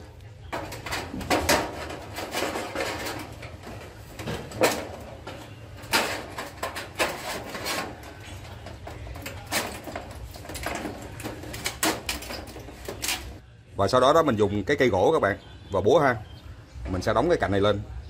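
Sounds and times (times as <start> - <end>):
sheet metal clattering: 0.4 - 13.4
screwdriver scraping metal roofing: 0.5 - 13.4.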